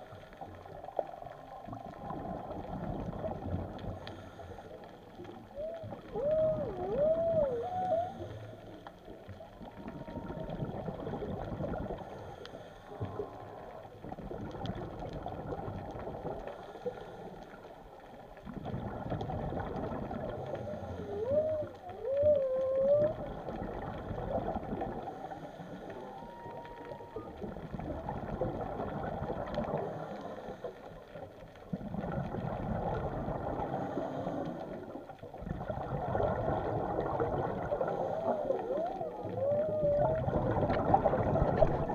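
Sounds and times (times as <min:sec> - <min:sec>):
whale song underwater: 0:00.0 - 0:41.9
scuba regulator breathing: 0:03.8 - 0:05.2, 0:07.6 - 0:09.0, 0:11.8 - 0:13.7, 0:16.5 - 0:17.8, 0:20.3 - 0:22.2, 0:24.9 - 0:26.4, 0:29.6 - 0:31.1, 0:33.5 - 0:35.0, 0:37.6 - 0:39.5.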